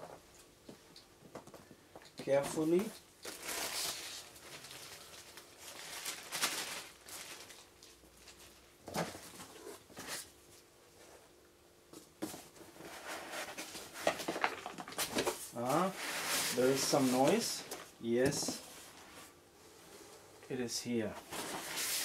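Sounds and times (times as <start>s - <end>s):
plastic and foam rustling: 2.3s - 10.3s, 12.2s - 20.3s, 20.9s - 22.0s.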